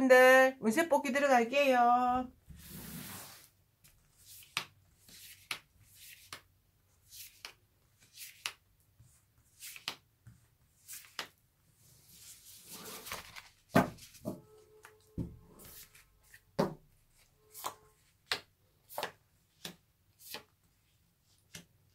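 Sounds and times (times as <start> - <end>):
deck of cards swept up: 2.5 - 3.6
cards swishing and tapping: 3.2 - 11.4, 13.0 - 21.9.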